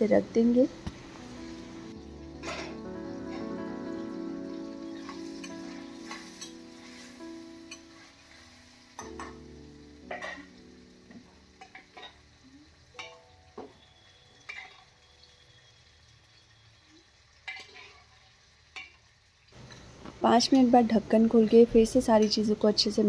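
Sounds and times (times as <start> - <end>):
soft background music: 0.0 - 17.4
faint frying sizzle: 0.0 - 23.0
metal spatula scraping pan: 2.4 - 3.4, 5.0 - 8.5, 17.5 - 18.2.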